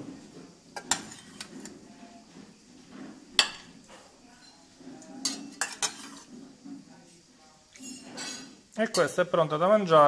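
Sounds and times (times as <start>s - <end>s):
metal ladle clinking against pot: 5.2s - 6.3s.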